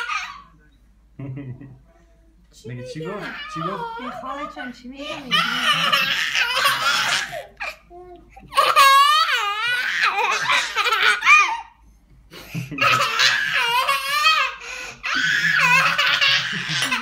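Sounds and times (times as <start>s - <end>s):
young child laughing: 12.4s - 14.5s, 15.1s - 17.0s.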